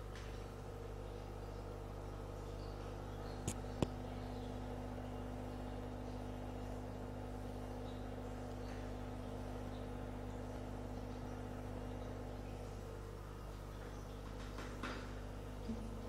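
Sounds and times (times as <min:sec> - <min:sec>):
aquarium pump humming: 0:00.0 - 0:16.0.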